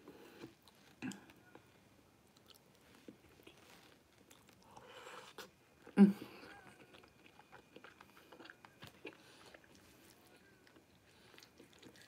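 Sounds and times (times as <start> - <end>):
faint chewing with wet clicks: 0.0 - 12.0.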